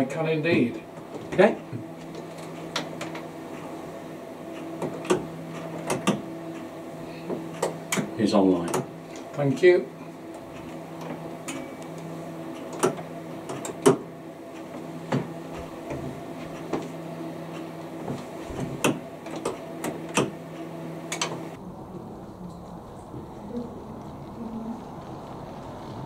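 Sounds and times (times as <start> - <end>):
sharp clicks and knocks: 0.5 - 3.7, 4.6 - 6.7, 7.3 - 9.4, 10.3 - 21.5
model railway hum: 21.1 - 26.0.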